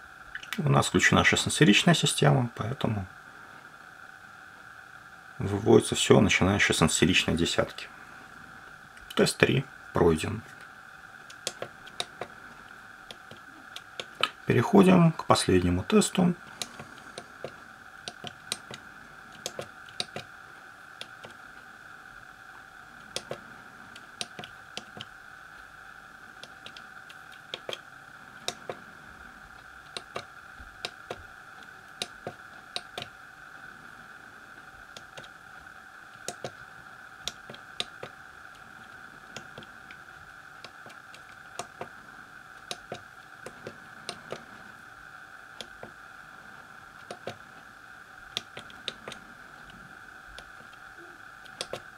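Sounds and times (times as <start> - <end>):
steady high whine: 0.0 - 51.9
calculator keypad clicks: 51.5 - 51.8.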